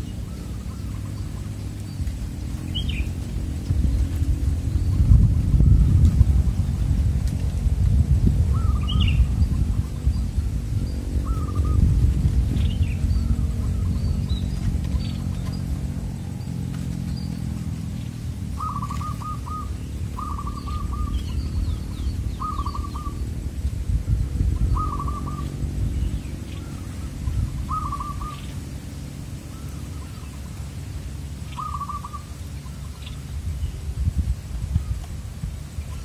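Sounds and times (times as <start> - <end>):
low steady rumble: 0.0 - 36.0
small birds chirping: 0.0 - 36.0
dove cooing: 11.2 - 11.9, 18.4 - 23.2, 24.6 - 25.6, 26.6 - 28.7, 31.6 - 33.0.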